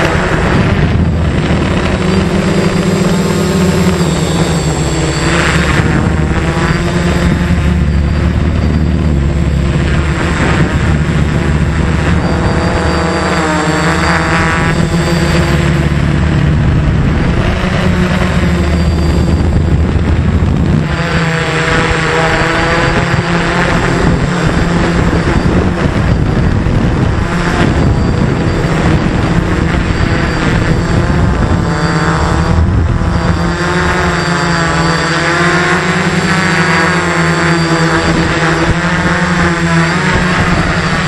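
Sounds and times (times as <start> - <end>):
quadcopter motors whining: 0.0 - 41.0
wind rumble: 0.0 - 41.0.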